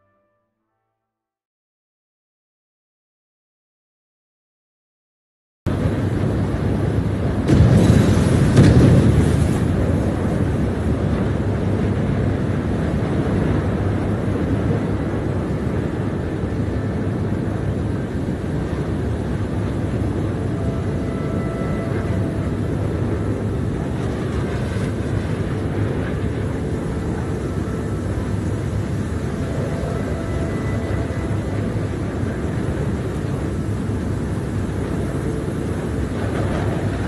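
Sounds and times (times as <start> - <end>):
explosion-like burst: 7.4 - 10.8.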